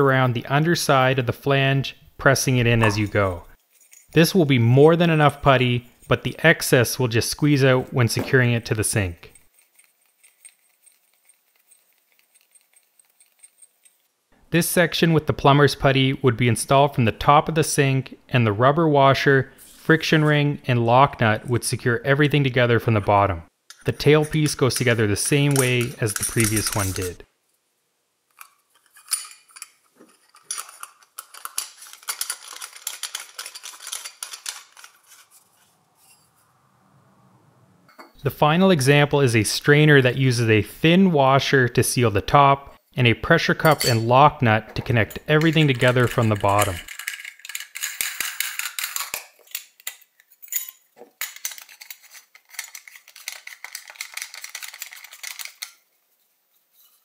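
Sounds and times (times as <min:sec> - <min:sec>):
metal parts clinking and scraping: 0:02.9 - 0:04.2, 0:09.3 - 0:14.1, 0:23.7 - 0:27.2, 0:28.3 - 0:36.3, 0:43.6 - 0:44.1, 0:44.7 - 0:55.9.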